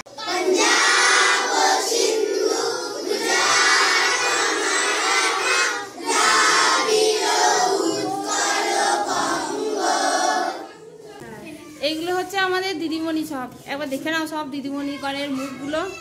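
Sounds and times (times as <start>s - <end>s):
children singing prayer together: 0.0s - 10.8s.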